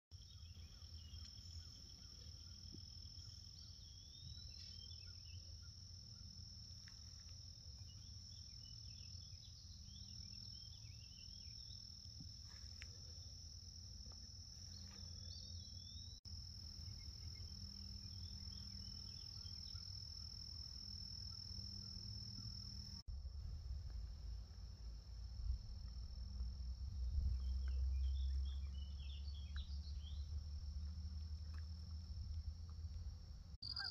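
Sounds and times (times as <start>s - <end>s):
insect chorus drone: 0.2s - 33.9s
low rumble: 23.1s - 33.5s
bird chirps: 33.6s - 33.9s.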